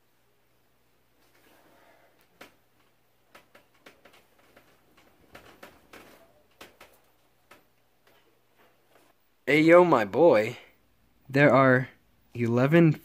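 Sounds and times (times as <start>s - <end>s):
bedding rustling: 0.9s - 9.2s.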